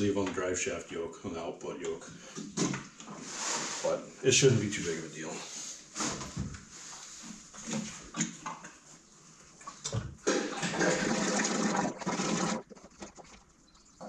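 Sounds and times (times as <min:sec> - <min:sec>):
oil pouring into tank: 0:10.3 - 0:13.5.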